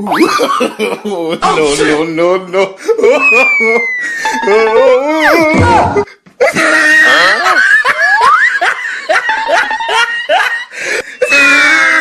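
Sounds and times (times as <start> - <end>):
person laughing: 2.8 - 10.7.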